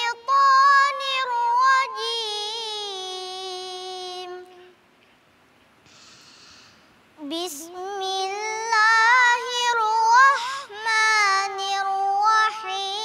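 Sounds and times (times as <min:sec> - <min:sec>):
child chanting melodic recitation: 0:00.0 - 0:04.8, 0:07.2 - 0:13.0
breath: 0:05.8 - 0:07.0, 0:10.4 - 0:10.7.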